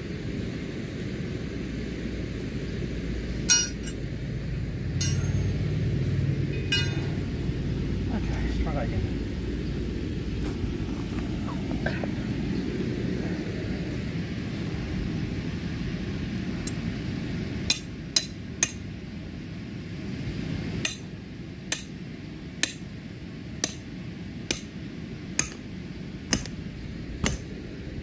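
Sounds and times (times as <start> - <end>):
hammer striking metal stake: 3.5 - 4.0, 5.0 - 5.6, 6.5 - 7.1, 17.7 - 18.8, 20.8 - 21.1, 21.7 - 22.0, 22.6 - 22.9, 23.6 - 23.9, 24.5 - 24.8, 25.4 - 25.6, 26.3 - 26.6, 27.2 - 27.5.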